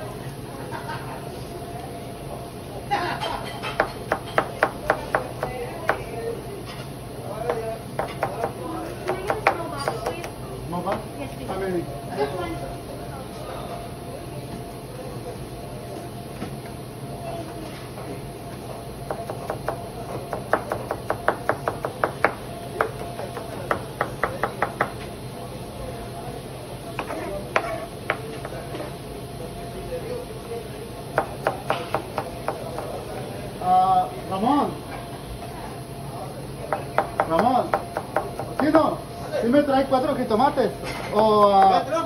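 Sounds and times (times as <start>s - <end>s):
knife chopping on cutting board: 8.0s - 10.2s, 19.1s - 25.0s, 31.2s - 32.9s.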